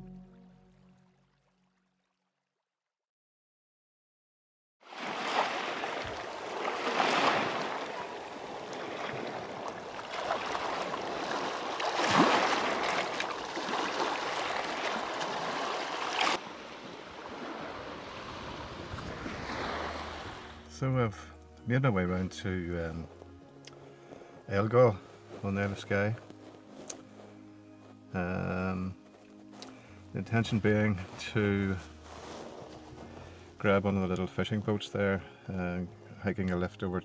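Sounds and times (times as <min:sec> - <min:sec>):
waves washing over pebbles: 0:04.9 - 0:20.7.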